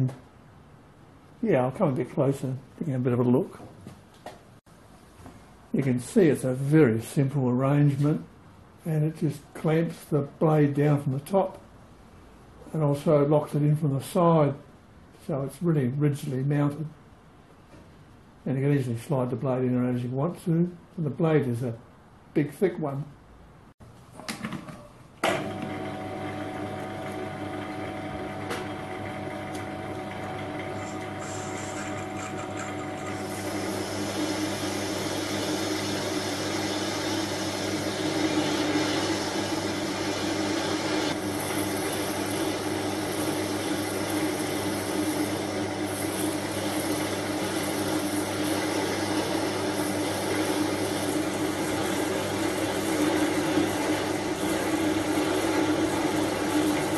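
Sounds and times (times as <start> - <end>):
metal lathe humming: 25.3 - 56.9
blade cutting aluminium: 30.8 - 56.9.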